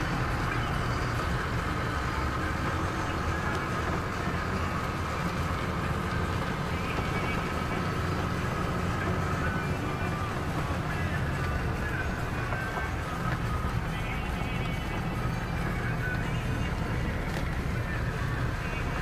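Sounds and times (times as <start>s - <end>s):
car engine and tyre rumble: 0.0s - 19.0s.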